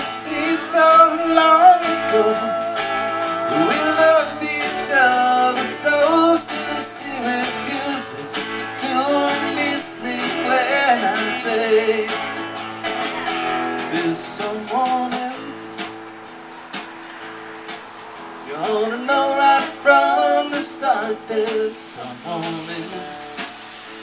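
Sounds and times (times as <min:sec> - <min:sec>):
hand drum: 0:00.0 - 0:05.8
sliding bending melody line: 0:00.0 - 0:09.0
acoustic guitars strumming: 0:00.0 - 0:24.0.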